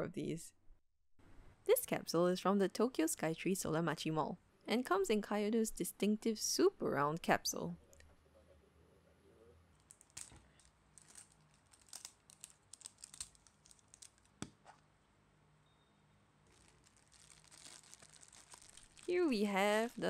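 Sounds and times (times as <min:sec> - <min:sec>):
cellophane crinkling: 0:09.8 - 0:14.8, 0:16.4 - 0:20.0
plastic capsule handled: 0:09.8 - 0:14.8, 0:16.5 - 0:19.1
sticker seal peeling off plastic: 0:09.9 - 0:14.8.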